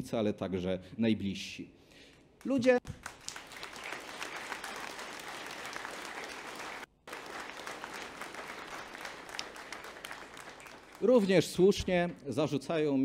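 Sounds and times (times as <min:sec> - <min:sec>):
audience applauding: 0:02.9 - 0:12.3.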